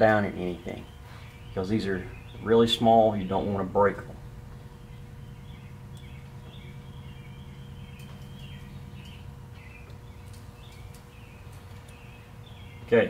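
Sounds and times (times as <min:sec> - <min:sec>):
steady low hum: 0:00.0 - 0:13.0
faint bird chirps: 0:04.5 - 0:13.0.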